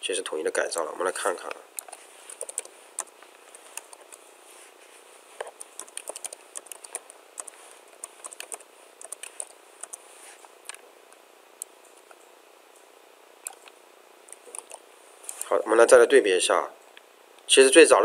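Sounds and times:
computer keyboard keystroke clicks: 1.8 - 3.1, 5.6 - 10.0, 14.3 - 15.5.

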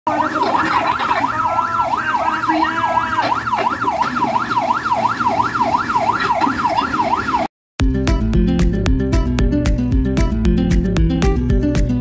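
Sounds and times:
electronic yelp siren: 0.1 - 7.5.

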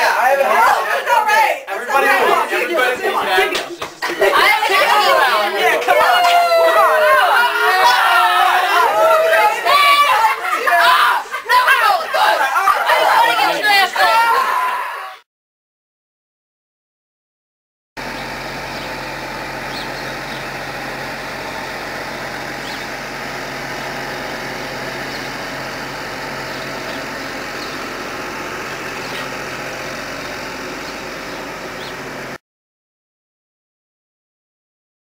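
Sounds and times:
tractor engine running: 1.9 - 13.8, 18.0 - 32.4.

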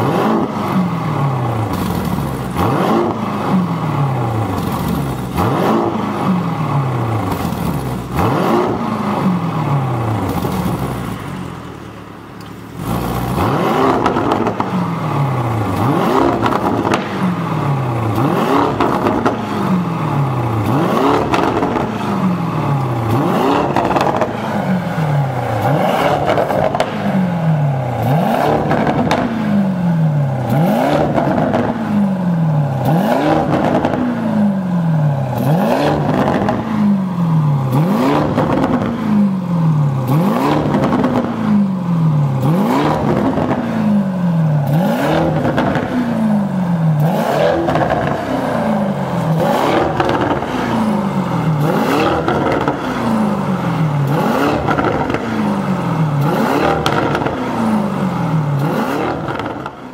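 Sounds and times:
car engine revving: 0.0 - 59.9
exhaust crackling: 0.0 - 59.9.

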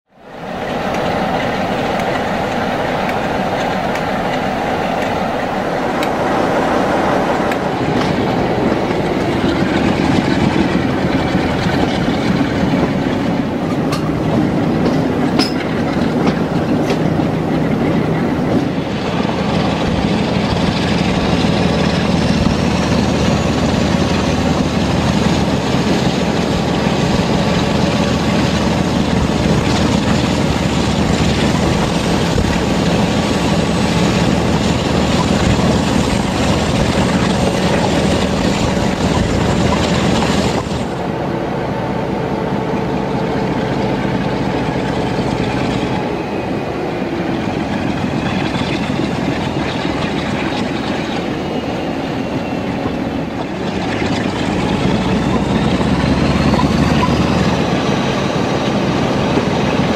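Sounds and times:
diesel locomotive engine under load: 0.1 - 59.9
wheels clicking over rail joints: 7.4 - 41.0, 47.3 - 59.9
faint rising whistle: 41.6 - 53.4.

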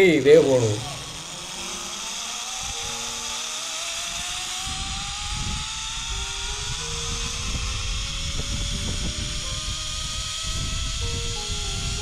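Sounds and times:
zipline pulleys whining on cable: 0.0 - 12.0
wind buffeting microphone: 4.0 - 12.0.

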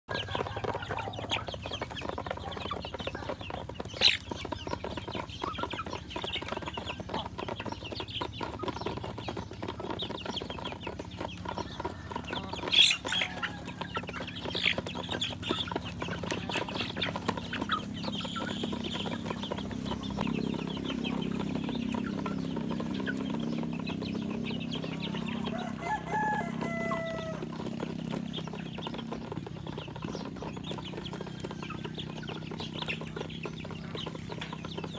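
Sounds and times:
beaks pecking: 0.1 - 34.9
chicks clucking and peeping: 0.1 - 34.9.

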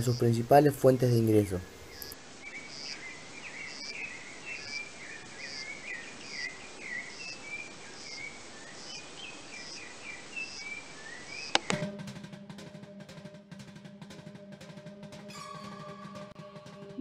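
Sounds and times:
birds chirping: 0.0 - 11.8
short high insect chirp: 1.9 - 9.0
drum music: 11.5 - 17.0.

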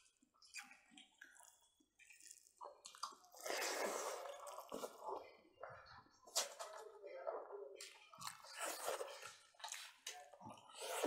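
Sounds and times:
wet chewing and lip smacks: 0.1 - 4.8.

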